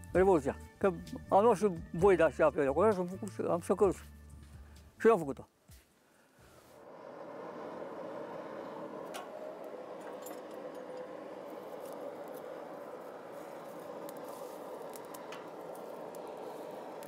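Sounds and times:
air rushing through forge fire: 6.4s - 17.0s
fire crackling and popping: 11.6s - 17.0s.

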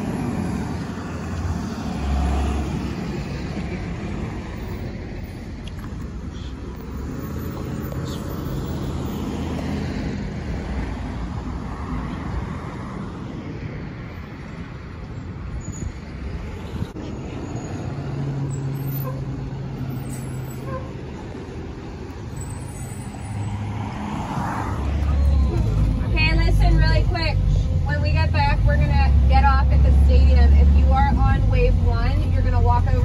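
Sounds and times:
car passing close: 0.0s - 6.1s, 16.9s - 33.0s
vehicles driving by: 0.0s - 33.0s.

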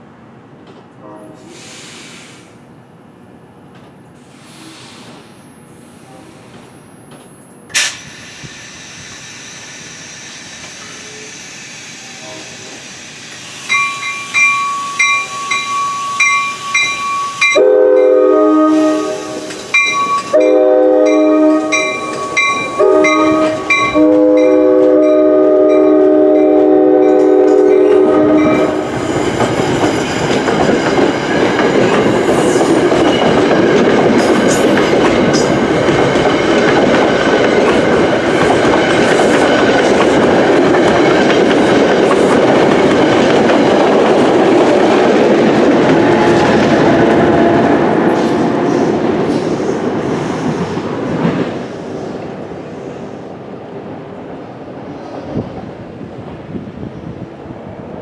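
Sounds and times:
train wheels rumbling on rails: 0.0s - 58.0s
train horn blasts: 1.0s - 1.7s, 12.1s - 12.7s, 17.4s - 29.0s, 46.0s - 48.0s
crossing bell ringing: 13.7s - 18.7s, 19.4s - 28.9s.

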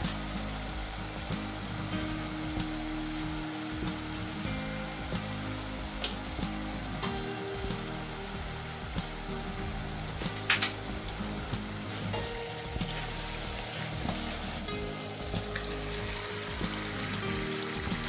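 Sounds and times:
meat sizzling in oil: 0.0s - 18.0s.

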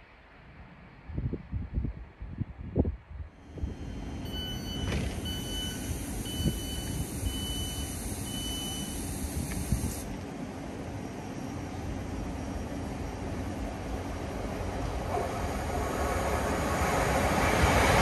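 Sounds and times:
train rumble and hiss: 3.3s - 18.0s
high on-and-off tone: 4.3s - 10.1s.

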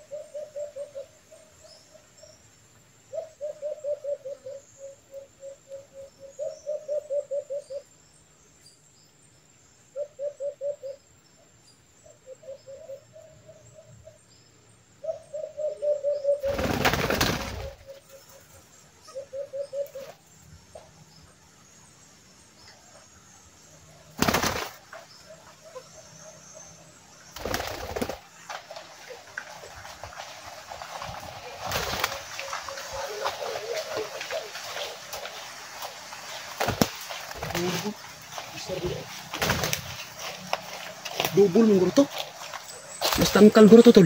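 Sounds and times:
doves cooing: 0.0s - 1.5s, 3.1s - 7.8s, 10.0s - 11.0s, 15.0s - 20.3s, 27.4s - 43.8s
dove wingbeats: 16.4s - 18.6s, 24.1s - 25.8s, 27.3s - 43.6s.

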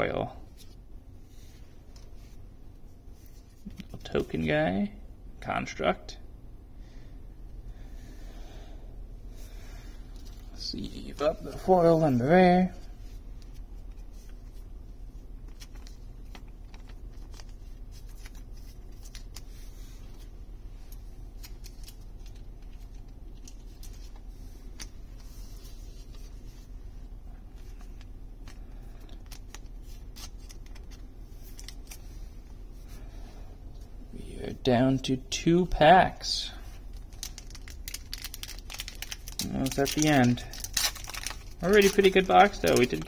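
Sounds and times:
low hum: 0.0s - 39.6s
plastic sleeves crinkling: 9.4s - 33.1s, 36.2s - 43.0s.

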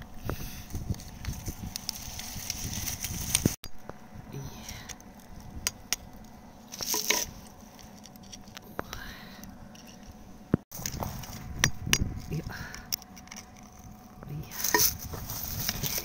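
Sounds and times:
metal scraping on rock: 5.2s - 8.6s, 10.8s - 16.0s.

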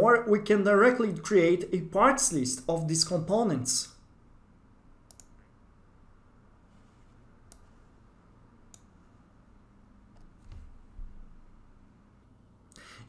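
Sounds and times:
computer mouse clicks: 5.0s - 5.5s, 7.5s - 7.8s, 8.7s - 9.0s.

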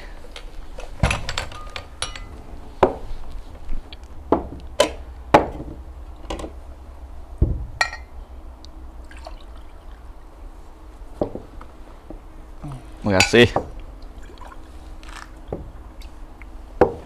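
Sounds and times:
low steady hum: 0.0s - 17.0s
glasses and cups clinking: 1.6s - 2.4s, 7.8s - 8.2s.

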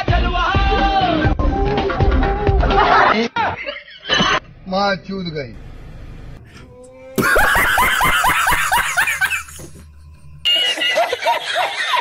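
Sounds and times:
another man laughing: 7.2s - 9.9s
man laughing: 7.2s - 9.9s, 10.5s - 12.0s.

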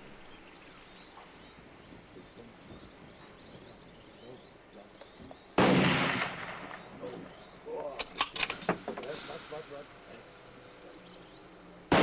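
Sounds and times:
faint chirps: 0.0s - 5.6s, 6.4s - 12.0s
crickets droning: 0.0s - 12.0s
rifle shot: 5.6s - 7.2s.

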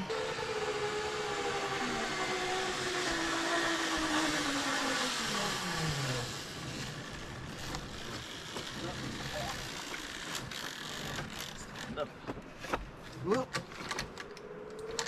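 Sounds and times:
zipline pulleys whirring: 0.0s - 12.0s
cable hiss: 0.6s - 11.5s.

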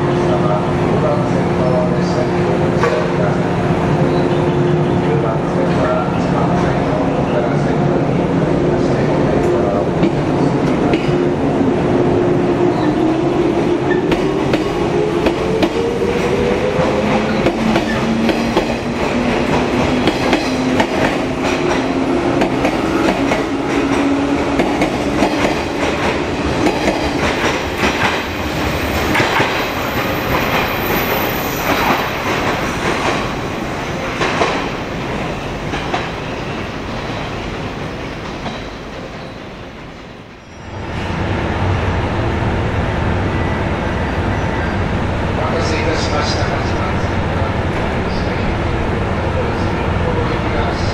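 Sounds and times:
train wheels clattering over rail joints: 17.2s - 28.3s, 29.0s - 29.7s.

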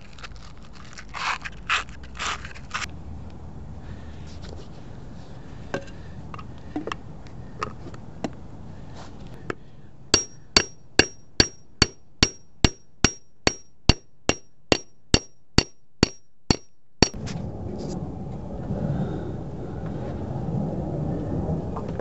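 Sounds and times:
hammer striking metal: 10.1s - 17.2s.

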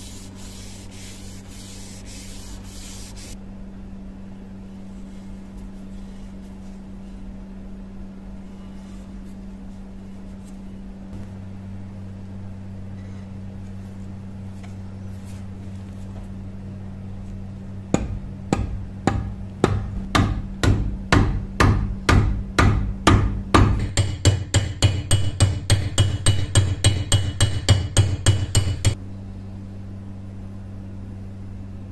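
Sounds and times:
steady low hum: 0.0s - 31.9s
hammer striking: 17.9s - 29.0s.

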